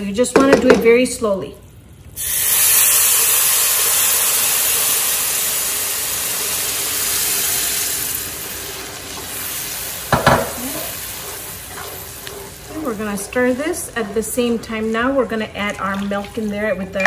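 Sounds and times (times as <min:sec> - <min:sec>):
liquid sizzling in a hot pan: 0:02.1 - 0:15.2
wooden spoon stirring: 0:08.5 - 0:17.0
spoon knocking against pot: 0:10.1 - 0:11.0.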